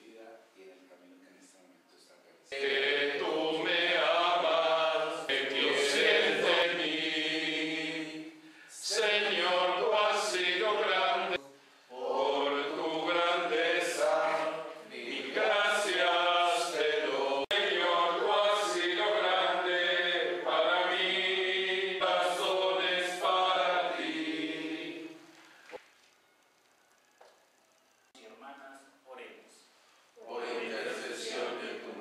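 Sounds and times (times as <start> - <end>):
voices singing a hymn: 2.5 - 25.8, 30.2 - 32.0.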